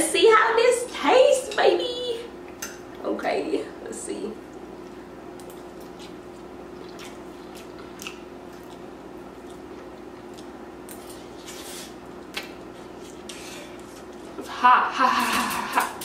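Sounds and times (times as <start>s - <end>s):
steady low hum: 0.0s - 16.0s
person chewing noodles: 4.5s - 14.5s.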